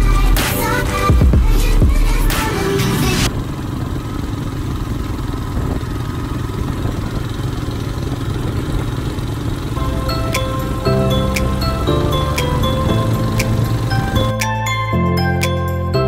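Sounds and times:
background music: 0:00.0 - 0:03.3, 0:09.8 - 0:16.0
motorcycle engine running: 0:00.0 - 0:14.4
wind and road noise: 0:00.1 - 0:14.4.

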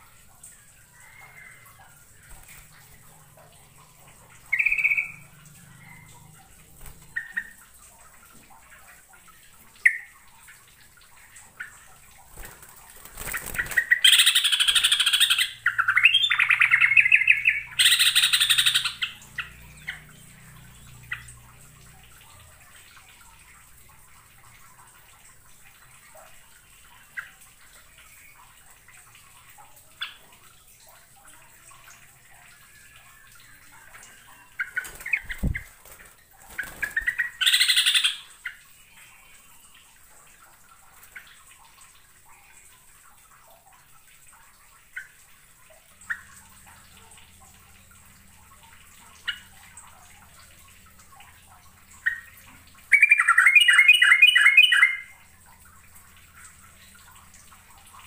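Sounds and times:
bird singing: 0:04.5 - 0:06.2, 0:13.7 - 0:21.3, 0:52.9 - 0:55.1.

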